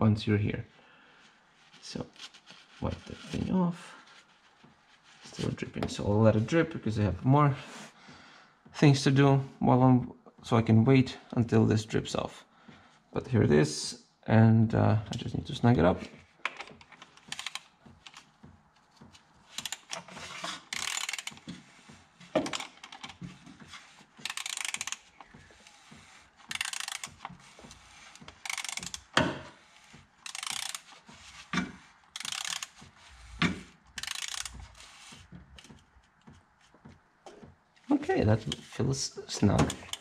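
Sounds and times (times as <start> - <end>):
socket ratchet clicking: 16.5 - 18.3, 19.5 - 21.5, 22.4 - 23.2, 24.2 - 29.2, 30.2 - 31.0, 32.1 - 35.7.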